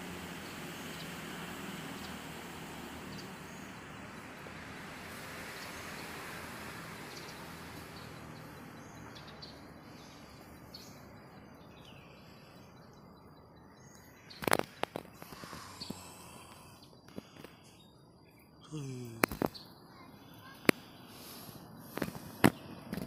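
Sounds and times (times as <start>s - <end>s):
steady hiss: 0.0s - 8.6s, 14.1s - 17.9s
high bird chirps: 7.0s - 21.9s.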